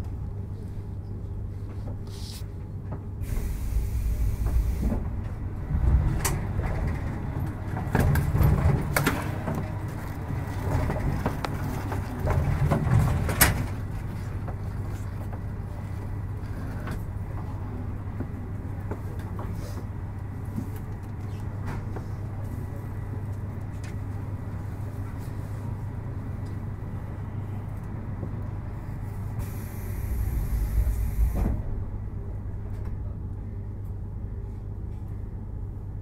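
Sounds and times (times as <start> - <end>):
train equipment low hum: 0.0 - 36.0
air hiss of train doors: 3.2 - 5.2, 29.2 - 31.8.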